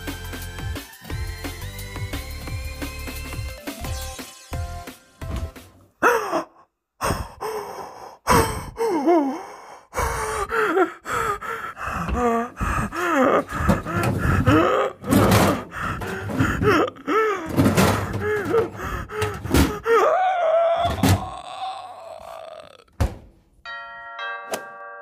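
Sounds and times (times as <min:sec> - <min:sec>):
wordless vocal sounds: 0:06.0 - 0:23.0
sharp thunks: 0:13.5 - 0:16.7, 0:17.5 - 0:19.9, 0:23.0 - 0:23.4
multi-tone doorbell chime: 0:23.6 - 0:25.0.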